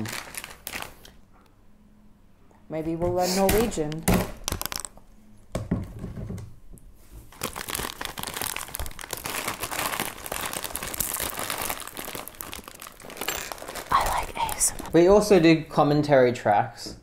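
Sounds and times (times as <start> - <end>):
bag tearing: 0.0 - 1.2, 7.3 - 15.0
foil chip bag crinkling: 0.0 - 1.2, 4.4 - 5.0, 7.3 - 15.1.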